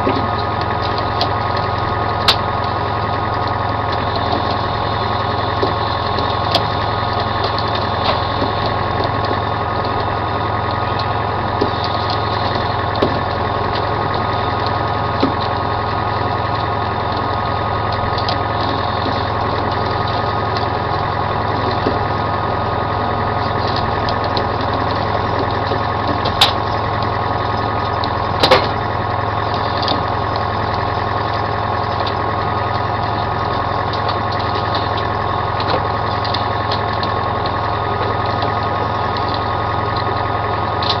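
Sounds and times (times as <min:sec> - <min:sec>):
boat engine droning: 0:00.0 - 0:41.0.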